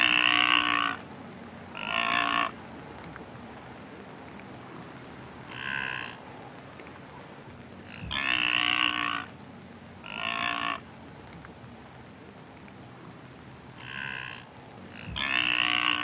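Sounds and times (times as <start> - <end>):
wildebeest nasal grunting calls: 0.0 - 1.1, 1.7 - 2.6, 4.6 - 6.2, 7.5 - 11.0, 12.9 - 16.0.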